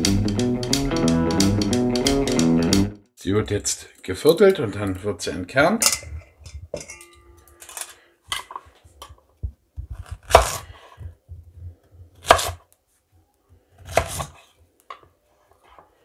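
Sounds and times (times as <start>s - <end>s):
knife chopping on wooden board: 9.8s - 10.6s, 12.2s - 12.6s, 13.9s - 14.4s.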